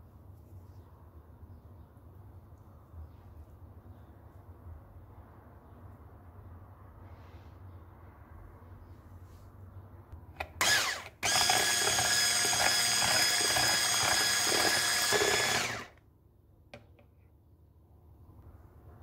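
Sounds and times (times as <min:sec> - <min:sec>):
electric hand mixer beating: 0:10.6 - 0:16.0.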